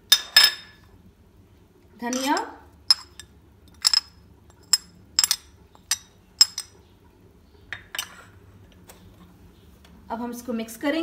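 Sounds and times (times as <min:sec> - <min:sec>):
ceramic clinking on glass: 0:00.1 - 0:00.8, 0:02.1 - 0:06.8.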